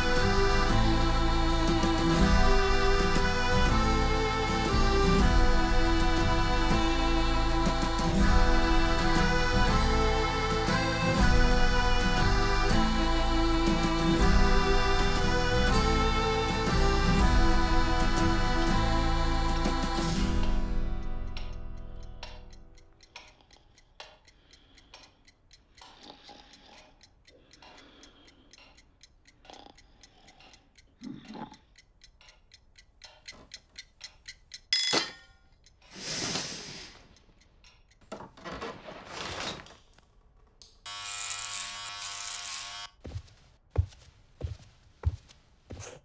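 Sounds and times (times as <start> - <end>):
clock ticking: 20.2 - 35.9, 37.0 - 38.2.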